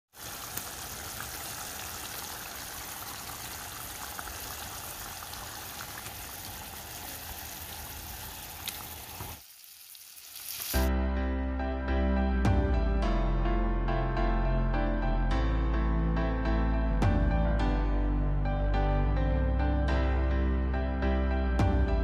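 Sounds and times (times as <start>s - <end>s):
curry bubbling in a pan: 0.1s - 10.8s.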